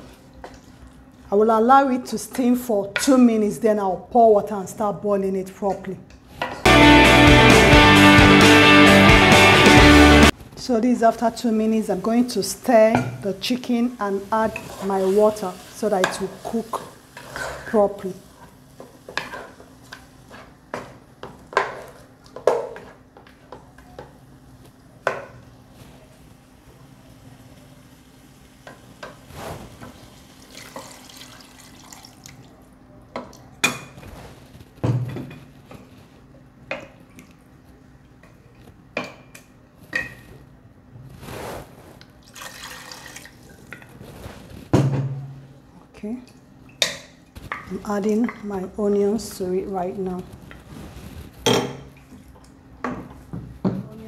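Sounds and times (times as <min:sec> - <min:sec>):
wooden spoon scraping a pot: 0:14.5 - 0:18.0
water pouring into a pot: 0:30.0 - 0:32.5, 0:42.2 - 0:43.7.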